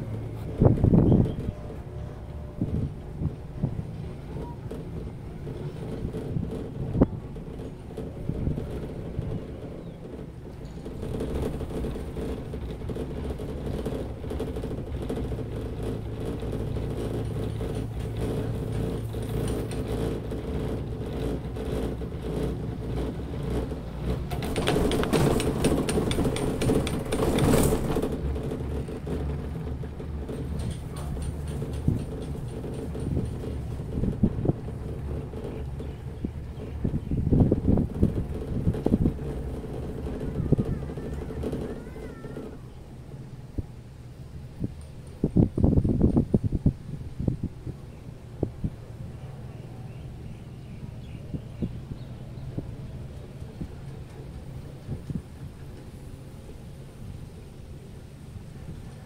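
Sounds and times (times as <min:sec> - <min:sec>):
cable car gondola humming: 0:00.0 - 0:59.0.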